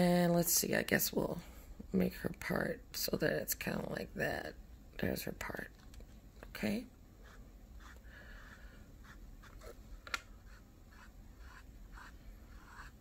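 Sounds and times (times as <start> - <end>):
paintbrush strokes on canvas: 10.4 - 13.0.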